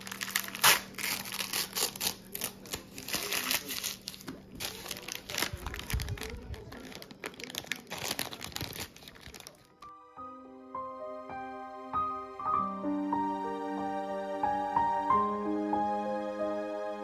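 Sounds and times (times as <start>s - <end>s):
paper crinkling and tearing: 0.0s - 9.9s.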